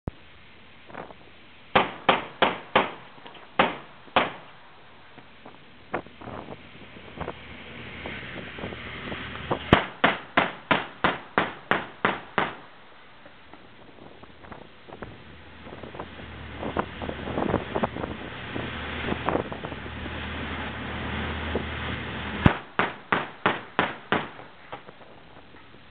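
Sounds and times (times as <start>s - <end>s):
wind hissing on microphone: 0.1s - 1.8s, 3.9s - 10.0s, 13.4s - 22.6s.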